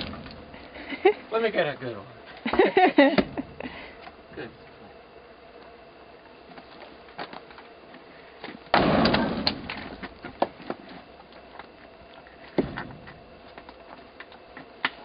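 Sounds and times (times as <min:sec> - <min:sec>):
axe splitting firewood: 0:08.7 - 0:10.9.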